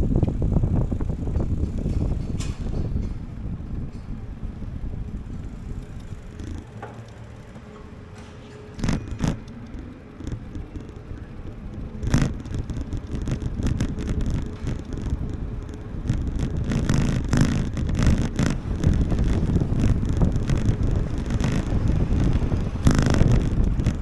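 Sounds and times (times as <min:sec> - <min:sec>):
road traffic rumble: 0:00.0 - 0:24.0
quick clicks and rattles: 0:05.1 - 0:24.0.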